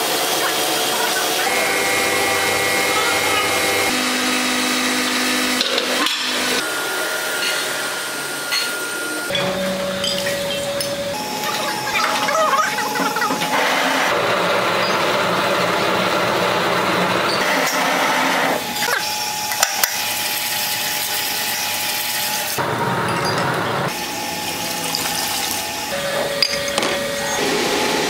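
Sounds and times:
water jets rinsing: 23.9s - 28.0s
water pouring and splashing: 24.4s - 25.9s.

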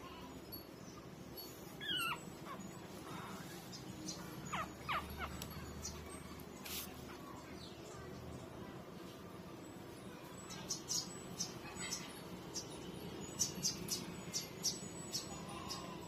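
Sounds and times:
puppies whimpering: 1.0s - 7.2s.

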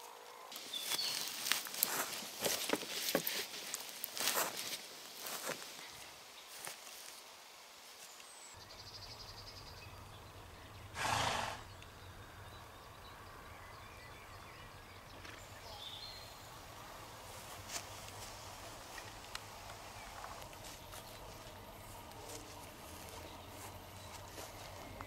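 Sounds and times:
pasture ambience: 0.0s - 25.0s
horse snorting: 10.9s - 11.8s.

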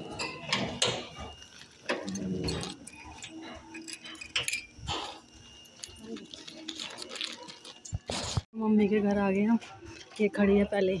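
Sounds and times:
keys jangling: 1.4s - 8.4s.

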